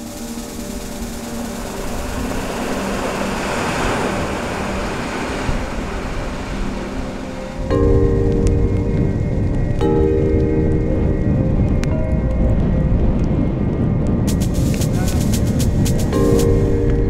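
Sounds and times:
ocean surf roaring: 0.0s - 8.3s, 14.3s - 17.0s.

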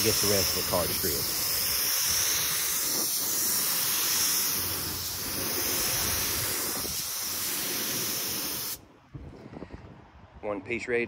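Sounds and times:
paint spray gun hissing: 0.0s - 8.8s.

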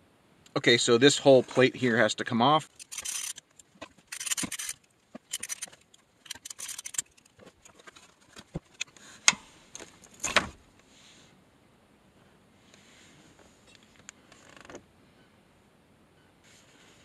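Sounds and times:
sharp metal clicks: 2.6s - 7.8s
ratchet wrench clicking: 2.7s - 7.3s.

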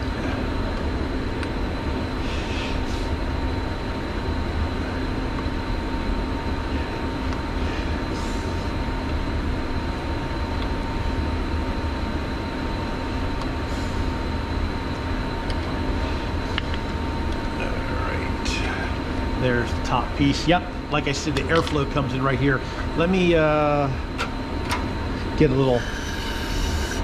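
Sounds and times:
mechanical drone with high whine: 0.0s - 27.0s.

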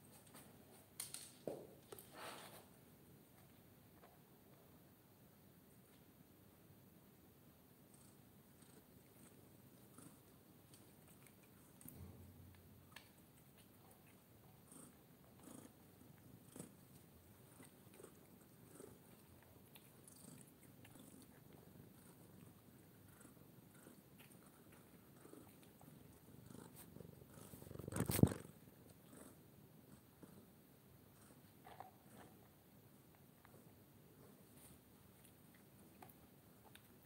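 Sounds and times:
cat purring: 7.8s - 37.0s.

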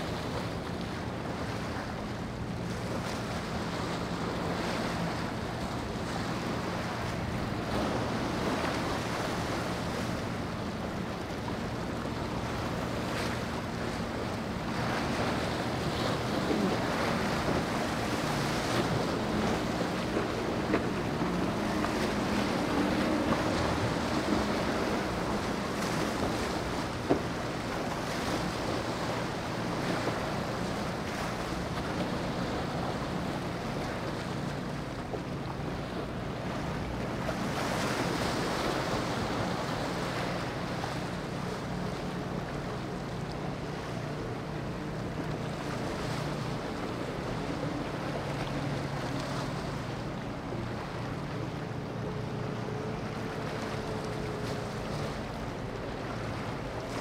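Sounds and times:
boat engines droning: 0.0s - 57.0s.

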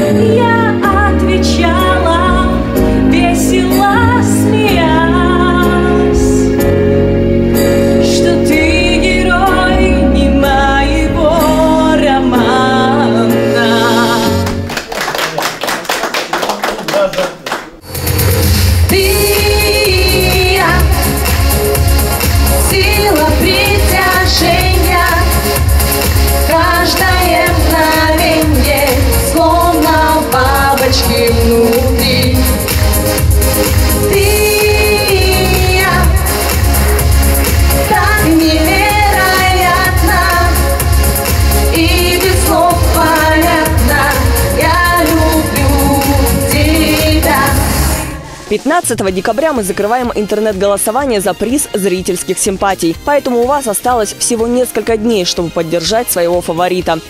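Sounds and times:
woman singing a slow ballad: 0.0s - 6.6s, 8.0s - 14.4s
women singing into microphones: 0.0s - 6.6s, 8.0s - 14.6s, 18.9s - 21.5s, 22.4s - 32.9s, 34.1s - 36.7s, 37.5s - 48.6s
backing track with bass beat: 17.8s - 48.1s
instrumental accompaniment: 17.8s - 57.0s.

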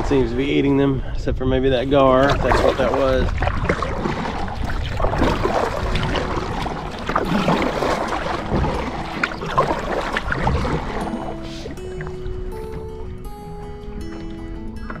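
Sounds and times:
water lapping against kayak: 0.0s - 15.0s
wind buffeting microphone: 0.0s - 15.0s
music: 5.3s - 15.0s.

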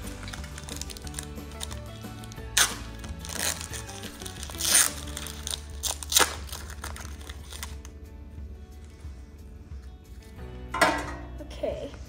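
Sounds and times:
foil wrapper tearing and crinkling: 0.0s - 7.9s
background music with low notes: 0.0s - 12.0s.

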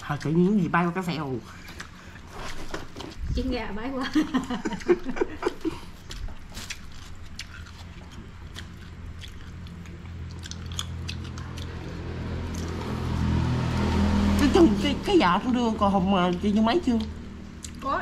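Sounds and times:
low steady hum: 0.0s - 18.0s
chewing chicken with crunchy clicks: 4.6s - 12.9s, 16.3s - 17.8s.

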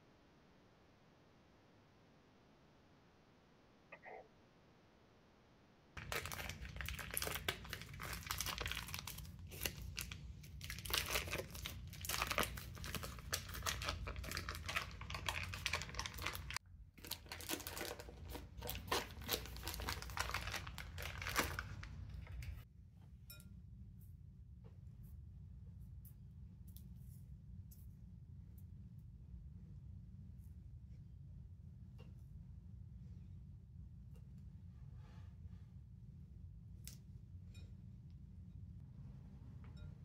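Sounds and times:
foil wrapper crinkling: 6.0s - 22.6s.

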